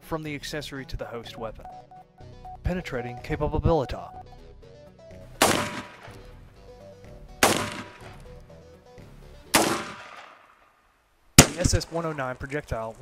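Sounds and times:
faint background music: 0:00.0 - 0:10.0
rifle shots echoing: 0:05.4 - 0:06.2, 0:07.4 - 0:08.2, 0:09.5 - 0:10.6, 0:11.4 - 0:12.4.

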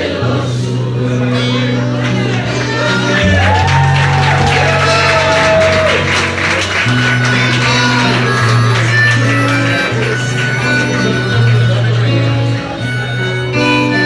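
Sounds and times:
acoustic guitar: 0:00.0 - 0:14.0
audience noise: 0:00.0 - 0:14.0
held bass notes: 0:00.7 - 0:14.0
melody line: 0:03.2 - 0:10.6.

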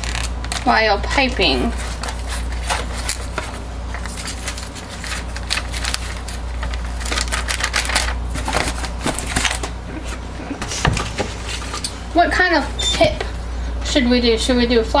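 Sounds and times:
plastic bags crinkling: 0:00.0 - 0:10.1
low steady hum: 0:00.0 - 0:15.0.

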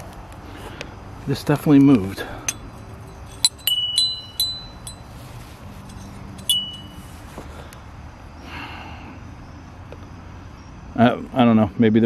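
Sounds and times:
metal wind chime clinking: 0:02.5 - 0:07.3.

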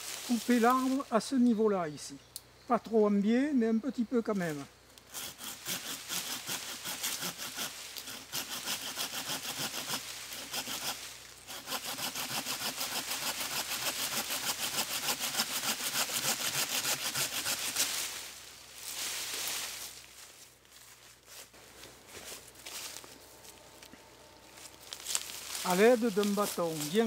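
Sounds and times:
hand saw cutting tree trunk: 0:05.1 - 0:18.1.

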